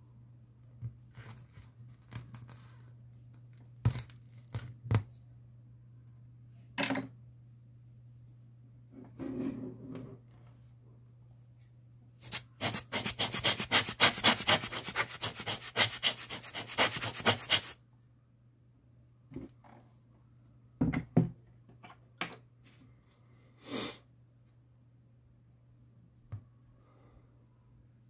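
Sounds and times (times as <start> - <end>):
rapid rubbing strokes: 12.2 - 17.8.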